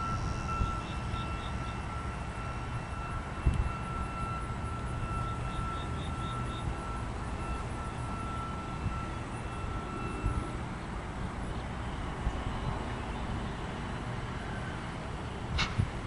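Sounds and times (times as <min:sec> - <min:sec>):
high wheel squeal: 0:00.0 - 0:10.6
freight cars rumbling on track: 0:00.0 - 0:16.0.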